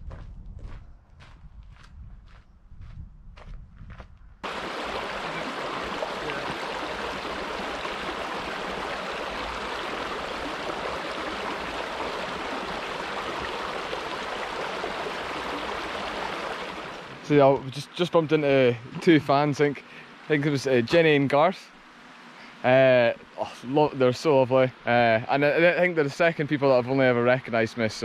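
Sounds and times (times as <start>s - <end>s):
footsteps: 0.0s - 4.2s
stream of running water: 4.4s - 28.0s.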